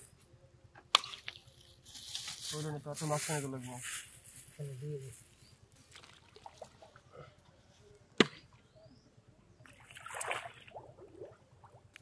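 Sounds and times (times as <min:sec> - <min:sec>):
foot splashing in shallow water: 0:09.8 - 0:11.4.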